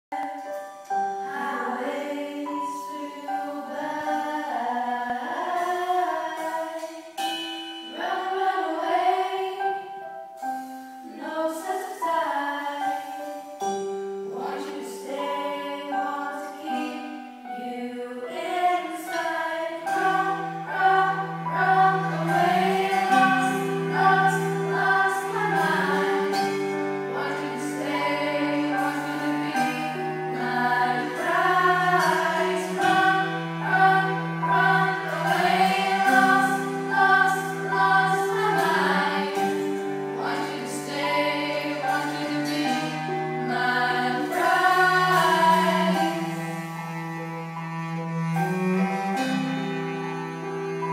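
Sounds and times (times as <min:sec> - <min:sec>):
cello: 0:00.1 - 0:50.9
keyboard: 0:00.1 - 0:50.9
group singing: 0:01.3 - 0:07.1, 0:07.9 - 0:09.9, 0:14.3 - 0:46.3.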